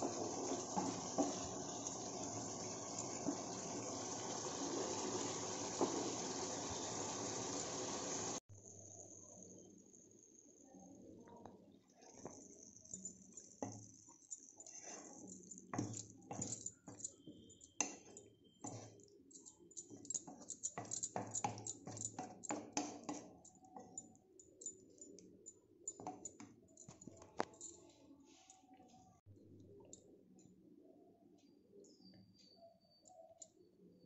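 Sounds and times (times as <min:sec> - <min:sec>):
spatula stirring in pan: 0:00.0 - 0:06.7, 0:14.6 - 0:23.9.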